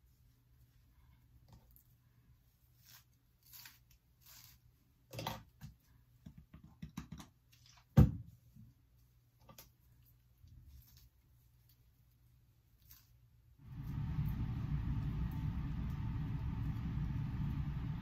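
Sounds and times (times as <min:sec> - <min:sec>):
comb brushing through hair: 0:02.6 - 0:04.7.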